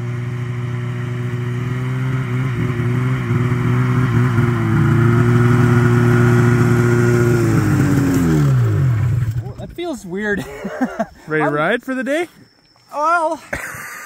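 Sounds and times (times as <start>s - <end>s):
snowmobile engine running: 0.0s - 10.0s.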